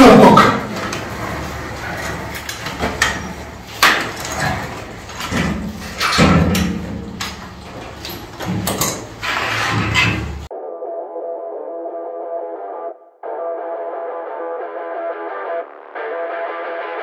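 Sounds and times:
metal knocks and scrapes: 0.0 - 10.5.

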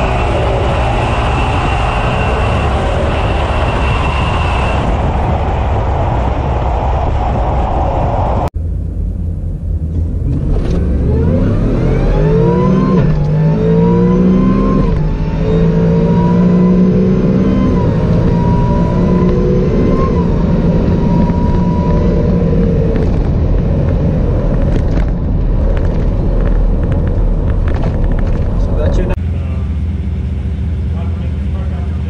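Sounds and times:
engine revving at full throttle: 0.0 - 5.0, 10.2 - 23.3.

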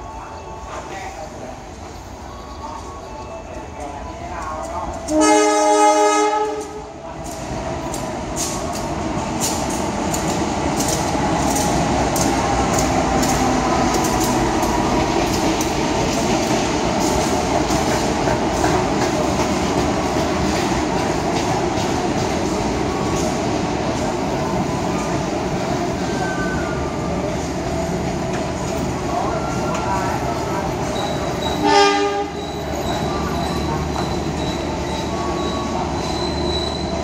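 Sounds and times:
train rumbling past: 0.0 - 37.0
train horn blast: 5.1 - 6.8, 31.6 - 32.4.

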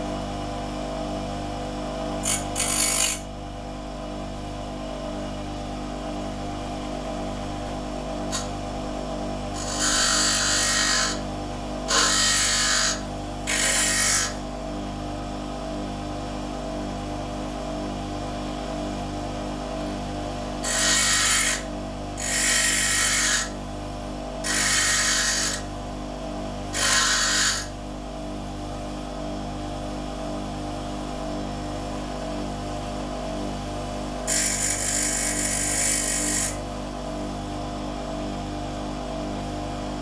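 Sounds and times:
bench grinder motor running: 2.2 - 3.3, 6.9 - 14.5, 20.5 - 25.8, 26.7 - 27.8, 34.1 - 36.8
metal grinding on wheel: 11.9 - 14.4, 26.7 - 27.7.

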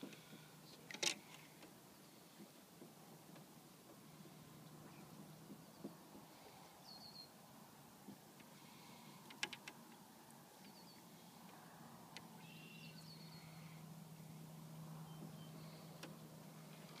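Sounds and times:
low steady hum: 0.0 - 17.0
faint bird chirps: 6.8 - 7.4, 10.6 - 11.2, 12.2 - 13.8, 15.0 - 16.0.

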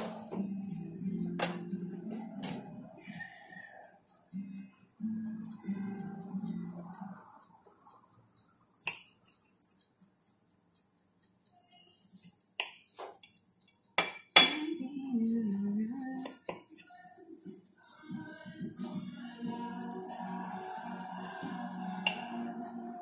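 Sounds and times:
knife clinking on ceramic plate: 14.0 - 14.7.

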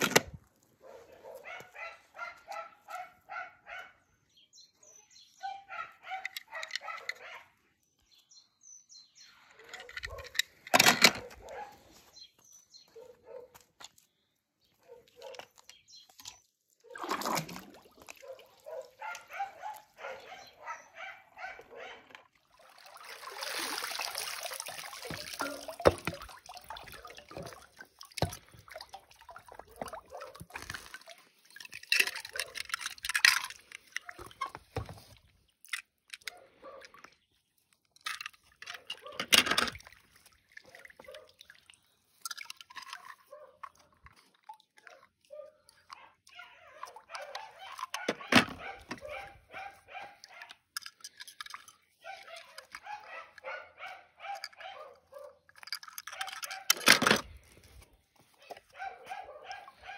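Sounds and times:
water running and dripping: 22.4 - 32.5.

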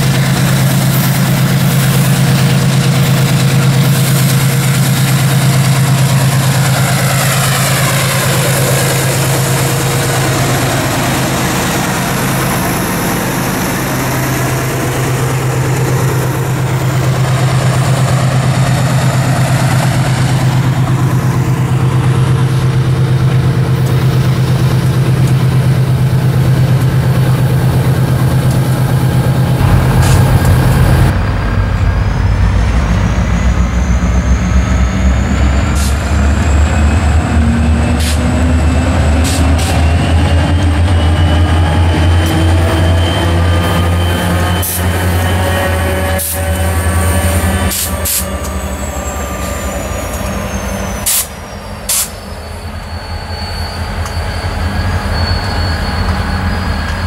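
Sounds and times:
diesel locomotive engines humming: 0.0 - 57.0.

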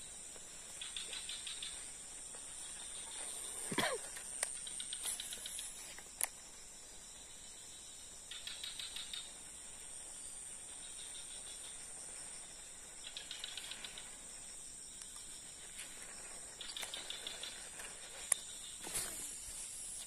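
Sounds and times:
insects droning: 0.0 - 20.0
rapid chirping call: 8.3 - 9.5.

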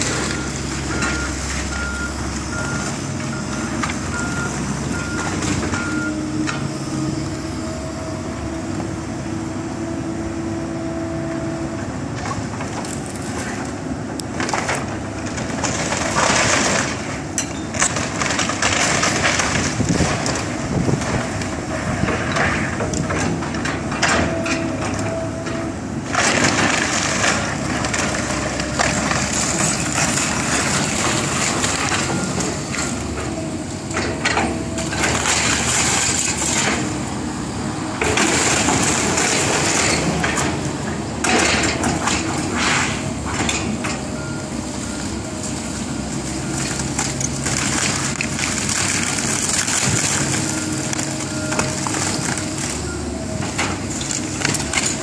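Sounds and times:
hydraulic excavator running: 0.0 - 55.0
reversing alarm beeping: 0.1 - 6.4.

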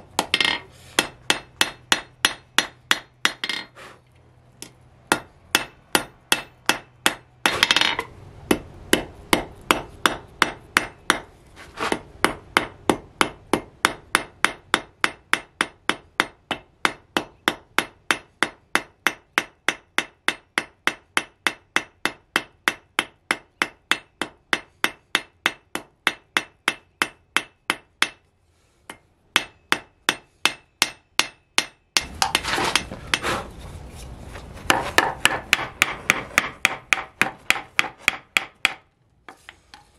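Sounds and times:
hammer ringing on hot steel: 28.9 - 33.2.

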